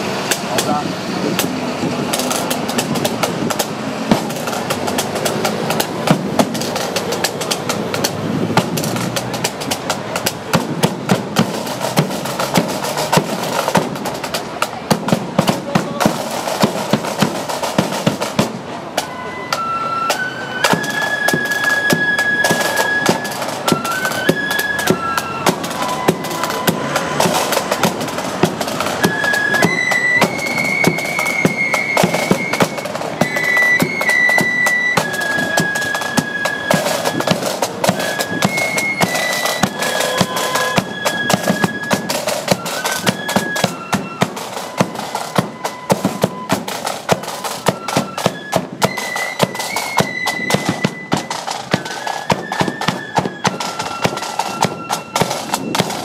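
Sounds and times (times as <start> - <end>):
flutes playing melody: 0.0 - 56.0
rapid drum beat: 1.4 - 18.7.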